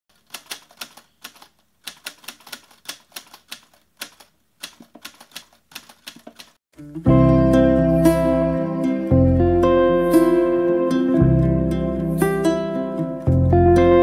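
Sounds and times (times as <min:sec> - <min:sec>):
typewriter keys clacking: 0:00.1 - 0:06.6.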